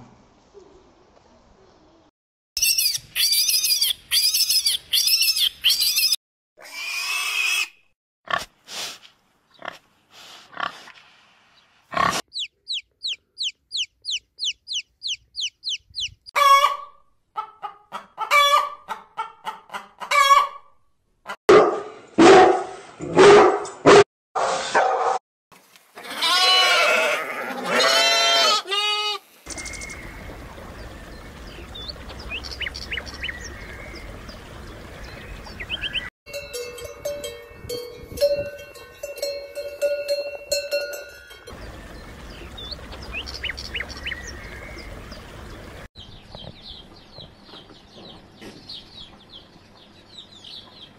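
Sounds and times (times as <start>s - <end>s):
overlapping animal calls: 11.9s - 17.5s, 26.1s - 36.1s
fast repeated high chirps: 12.3s - 16.2s.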